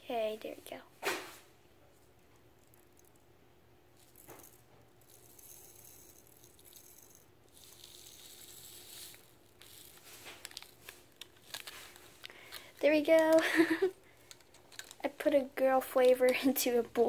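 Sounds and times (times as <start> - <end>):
packet contents rustling: 4.0 - 15.3.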